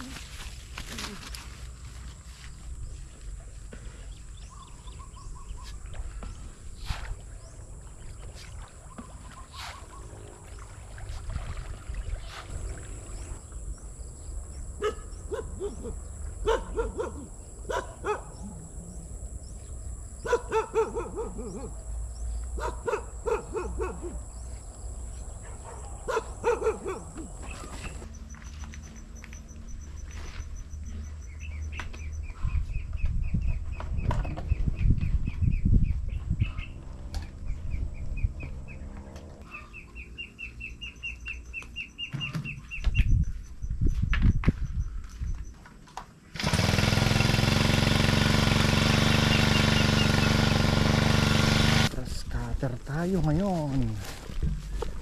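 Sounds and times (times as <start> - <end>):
wind noise on microphone: 32.2 - 38.6, 42.8 - 45.4.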